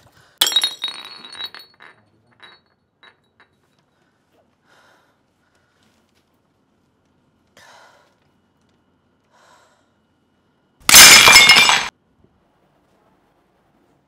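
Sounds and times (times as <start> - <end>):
china smashing on floor: 0.4 - 2.6, 10.8 - 11.9.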